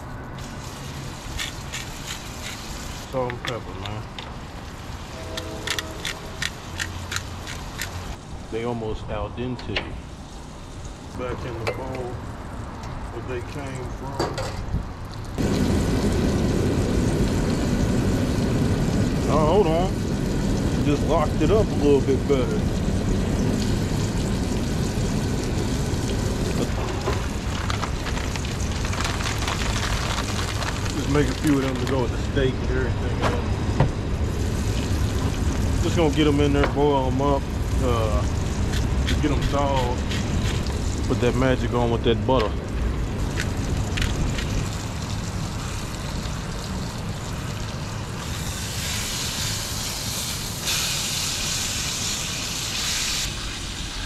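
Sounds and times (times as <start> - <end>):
steak sizzling in skillet: 0.4 - 3.1, 44.6 - 54.0
plastic package crinkling: 27.1 - 32.0
gas stove burner hissing: 48.2 - 54.0
steak sizzling in a pan: 48.2 - 54.0.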